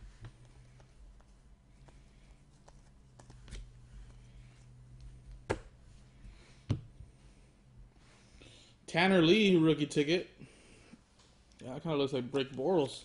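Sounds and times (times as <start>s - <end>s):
low steady hum: 0.0s - 13.0s
cards being flipped through: 0.2s - 4.3s.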